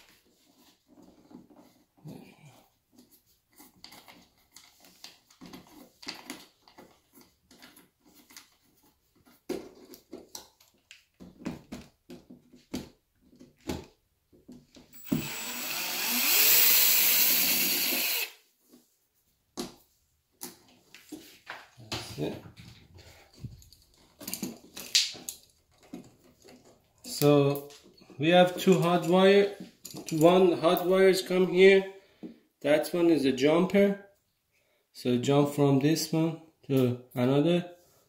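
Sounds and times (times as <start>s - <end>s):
cordless drill driving screw: 15.0s - 18.4s
handling clicks and knocks: 22.6s - 28.0s.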